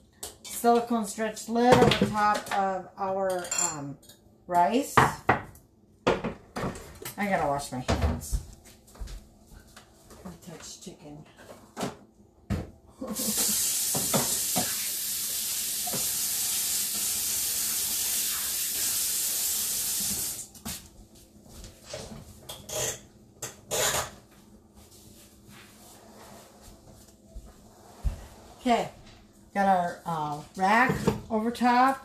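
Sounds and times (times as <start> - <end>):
faucet running: 13.0 - 20.5.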